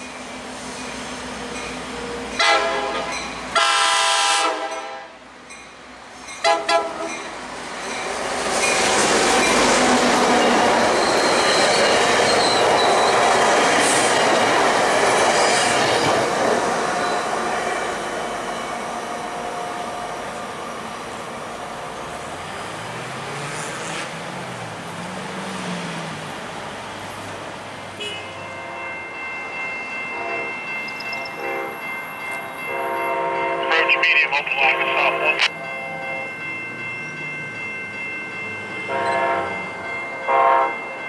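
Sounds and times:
train horn blasts: 0:02.4 - 0:05.2, 0:06.4 - 0:07.1, 0:28.0 - 0:28.9, 0:30.1 - 0:30.6, 0:31.3 - 0:31.8, 0:32.6 - 0:35.2, 0:38.9 - 0:39.6, 0:40.3 - 0:40.8
train wheels clattering on rails: 0:05.6 - 0:18.5.

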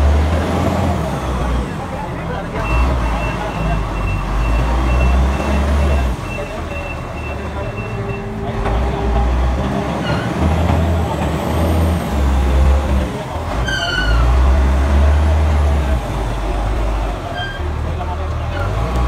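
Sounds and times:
forklift diesel engine rumble: 0:00.0 - 0:19.0
short squeal: 0:10.0 - 0:10.4, 0:13.6 - 0:14.4, 0:17.3 - 0:17.8.

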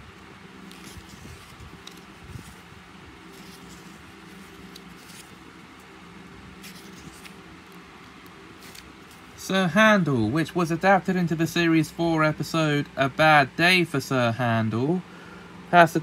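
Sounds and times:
low background hum: 0:00.0 - 0:16.0
book pages rustling: 0:00.1 - 0:09.4.

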